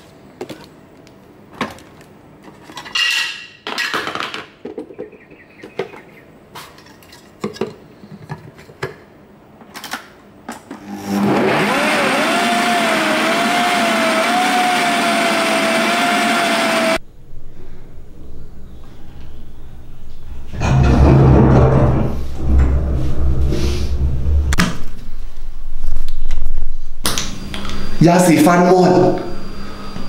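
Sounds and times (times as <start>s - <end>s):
blender running with whine: 10.8s - 17.0s.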